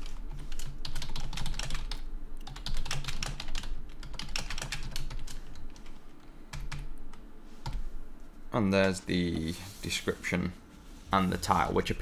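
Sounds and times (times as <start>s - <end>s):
computer keyboard typing: 0.0s - 7.0s.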